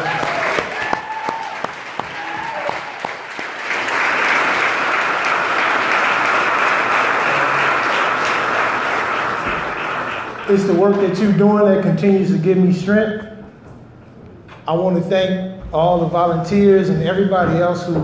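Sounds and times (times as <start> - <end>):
crowd applauding: 0.0 - 11.3.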